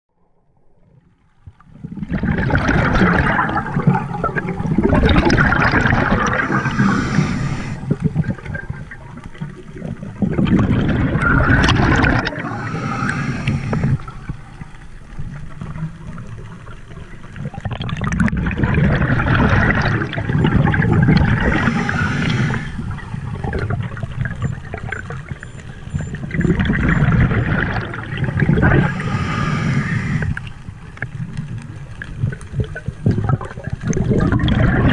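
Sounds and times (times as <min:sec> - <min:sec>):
scuba regulator bubbling exhalations: 0:01.9 - 0:14.8, 0:17.5 - 0:25.0, 0:26.0 - 0:31.3, 0:33.0 - 0:34.9.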